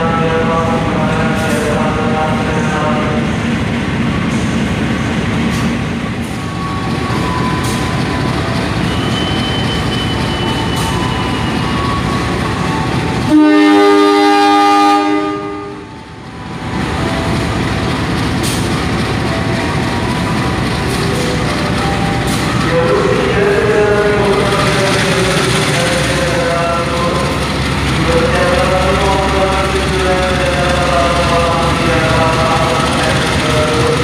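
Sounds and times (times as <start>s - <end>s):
diesel locomotive engine running: 0.0s - 34.0s
train horn blast: 13.2s - 15.9s.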